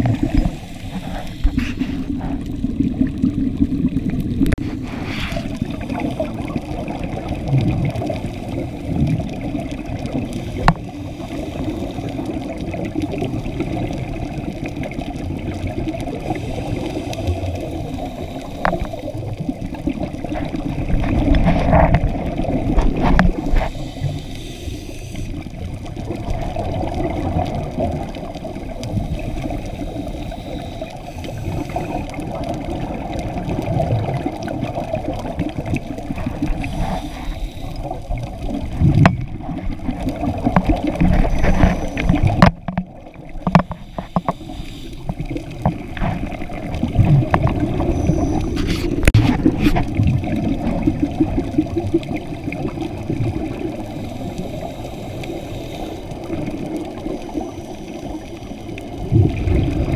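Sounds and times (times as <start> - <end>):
exhaled bubbles: 0.0 - 59.9
underwater regulator breathing: 0.1 - 2.7, 4.5 - 6.4, 16.1 - 19.4, 22.8 - 25.6, 28.8 - 32.1, 36.2 - 38.2, 40.6 - 42.8, 43.4 - 46.7, 47.4 - 49.9, 53.8 - 58.8.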